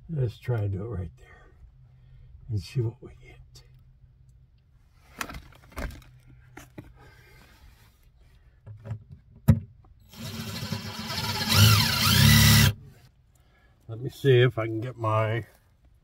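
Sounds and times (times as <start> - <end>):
cordless drill driving screw: 10.1 - 12.8.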